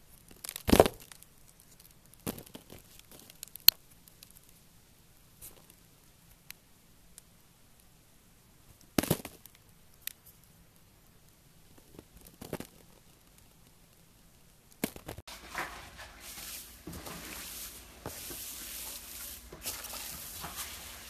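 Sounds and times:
foam beads crackling when squished: 0.0 - 4.6.

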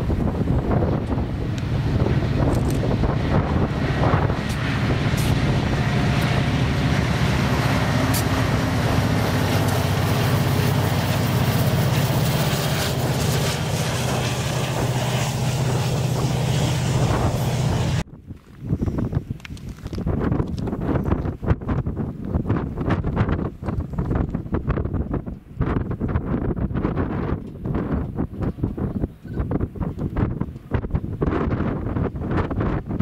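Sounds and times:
freight cars rolling on rails: 0.0 - 18.0
diesel locomotive engine drone: 0.0 - 20.0.

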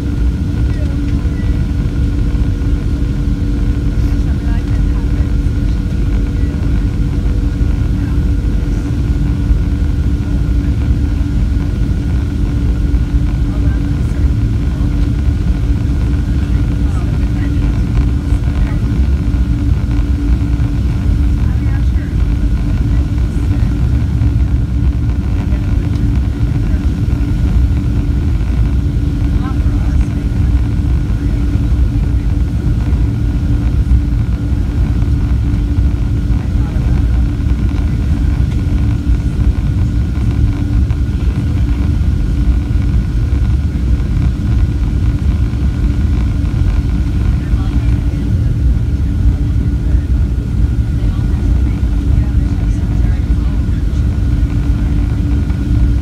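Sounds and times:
even hum: 0.0 - 56.0
jet engine rumble in cabin: 0.0 - 56.0.

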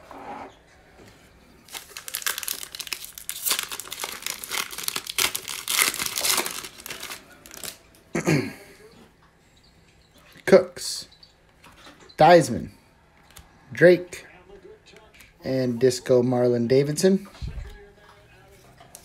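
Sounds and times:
foil wrapper tearing and crinkling: 1.7 - 7.8.

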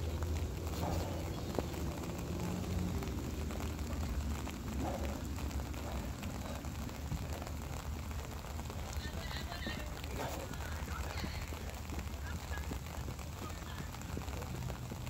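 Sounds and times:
light rain falling: 0.0 - 15.0.

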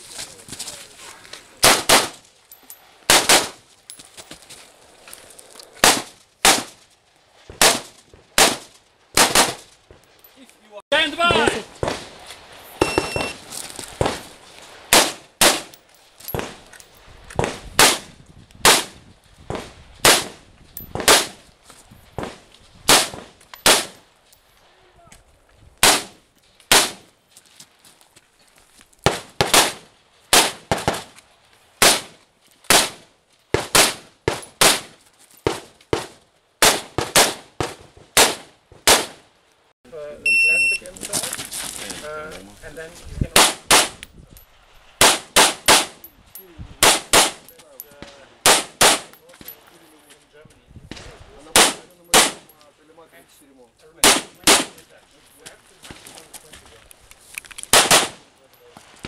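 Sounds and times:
electronic start beep: 12.8 - 13.4, 40.2 - 40.9
handgun shots: 35.5 - 39.2, 48.4 - 49.1, 57.7 - 58.2.

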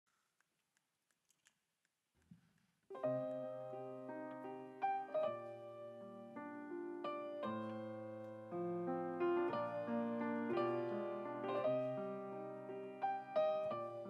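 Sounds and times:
grand piano chords: 2.9 - 14.0.

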